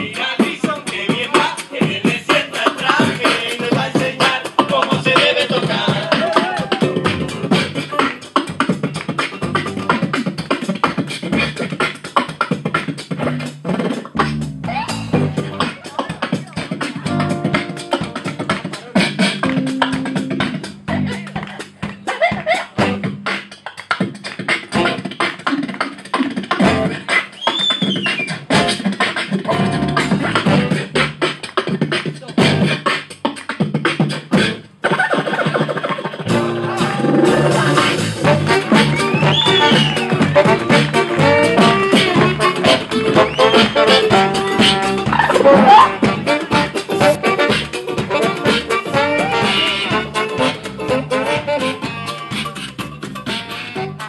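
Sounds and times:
person beatboxing: 0.0 - 54.0
gliding vocal effects: 44.6 - 46.1.

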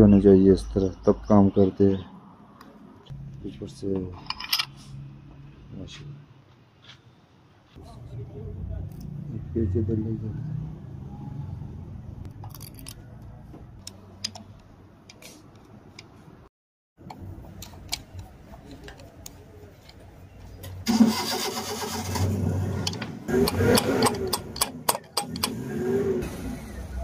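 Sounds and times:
screwdriver clicking on metal: 22.8 - 25.6.

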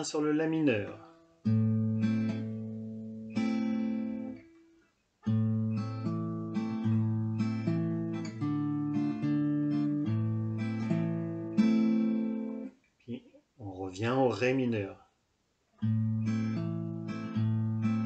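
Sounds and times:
acoustic guitar fingerpicking: 1.0 - 12.8, 15.8 - 18.0.

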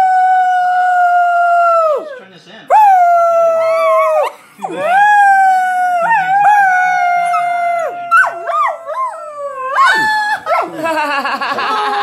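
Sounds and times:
dog howling: 0.0 - 10.9
people howling: 0.0 - 12.0.

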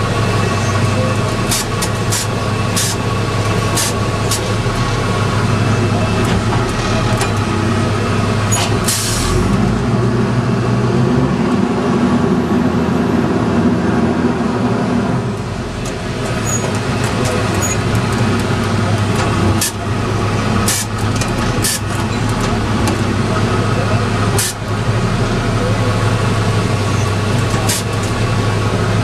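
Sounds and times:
diesel engine running: 0.0 - 29.0
air brake hiss: 8.9 - 9.4.

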